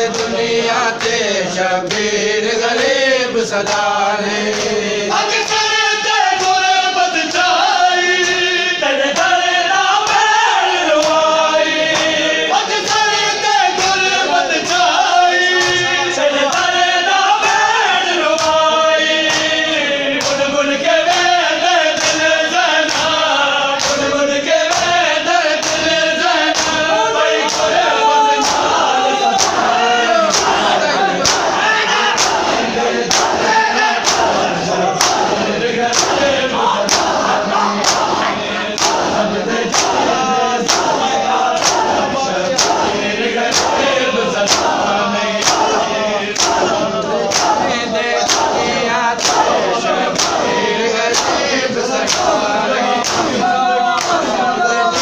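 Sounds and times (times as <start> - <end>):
man singing a lament: 0.0 - 55.0
men singing in chorus: 0.0 - 55.0
hands slapping chests: 0.1 - 0.4, 3.6 - 5.7, 11.0 - 11.2, 11.9 - 12.2, 19.2 - 19.6, 20.2 - 21.4, 22.0 - 24.1, 24.7 - 25.0, 25.6 - 27.8, 28.4 - 55.0.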